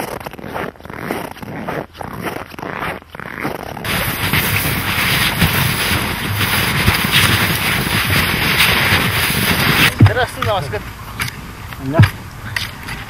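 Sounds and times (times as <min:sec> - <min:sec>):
footsteps crunching on snow: 0:00.0 - 0:13.0
continuous rushing noise: 0:03.8 - 0:13.0.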